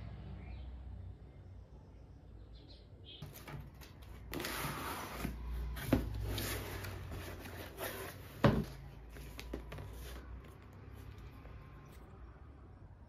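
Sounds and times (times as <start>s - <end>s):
cardboard flaps rustling: 3.2s - 10.7s.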